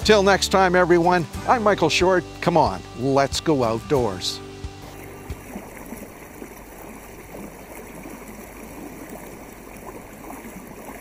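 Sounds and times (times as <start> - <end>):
water rippling along canoe hull: 0.0 - 11.0
small water splashes: 4.7 - 11.0.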